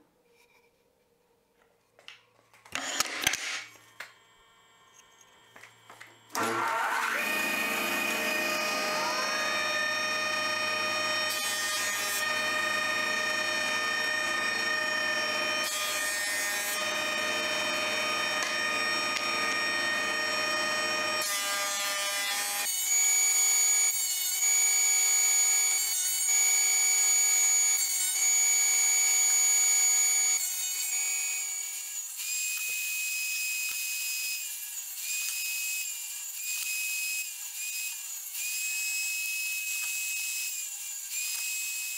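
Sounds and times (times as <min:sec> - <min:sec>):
planer motor whine: 0:02.7 - 0:21.7
table saw cutting wood: 0:02.7 - 0:41.9
boards rasping through planer: 0:06.3 - 0:22.6.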